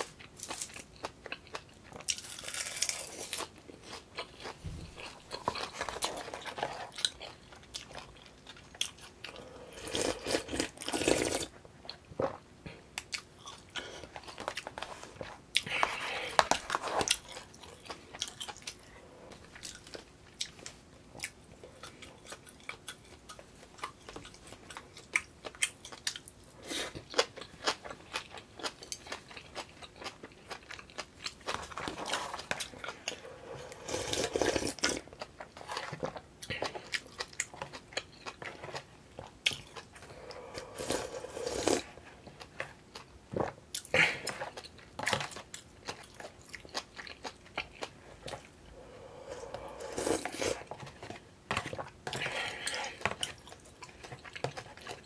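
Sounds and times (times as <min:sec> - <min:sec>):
wet chewing with mouth clicks: 0:00.0 - 0:55.0
slurping soup: 0:33.1 - 0:34.9, 0:40.0 - 0:42.0, 0:48.8 - 0:50.8.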